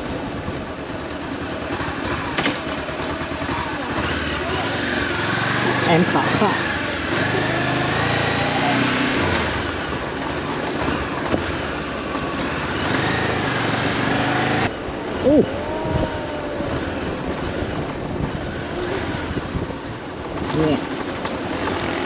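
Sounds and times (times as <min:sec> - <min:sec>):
motorcycle engine running: 0:00.0 - 0:22.0
wind rush on microphone: 0:14.7 - 0:20.8.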